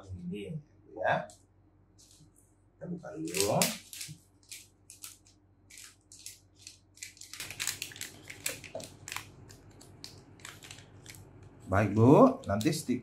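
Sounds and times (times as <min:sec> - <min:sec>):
packaging crinkling and rustling: 0:03.3 - 0:11.6.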